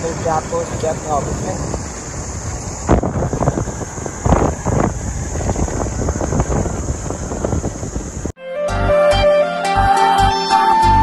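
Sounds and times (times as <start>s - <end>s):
motorcycle running: 0.0s - 8.4s
wind buffeting microphone: 0.0s - 8.4s.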